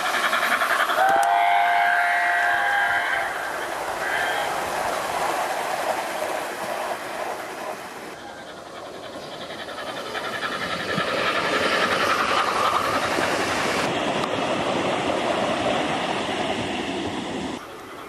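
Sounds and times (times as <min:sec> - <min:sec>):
model train wheels rumbling and clicking: 0:00.0 - 0:02.0, 0:04.6 - 0:16.0.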